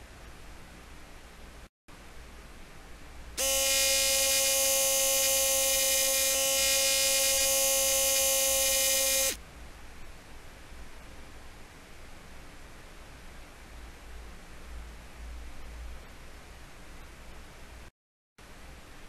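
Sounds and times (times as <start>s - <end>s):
electric drill whining: 3.4s - 9.4s.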